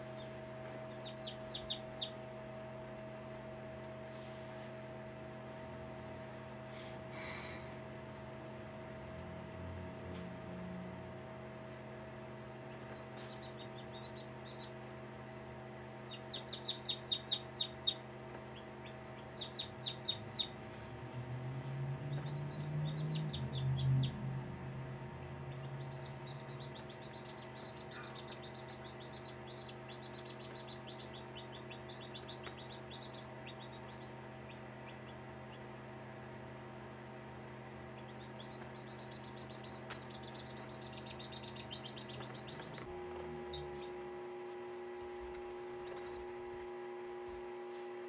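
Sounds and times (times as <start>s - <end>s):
chick peeping: 0.0s - 2.2s, 12.6s - 14.8s, 16.0s - 20.7s, 22.0s - 24.3s, 25.2s - 35.8s, 37.8s - 44.0s, 45.0s - 46.8s
electrical hum: 0.0s - 48.0s.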